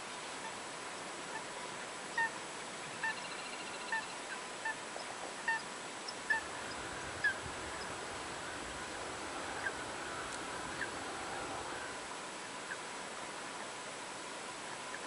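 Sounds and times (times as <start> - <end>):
steady hiss: 0.0 - 15.0
waterbirds calling: 1.3 - 12.9.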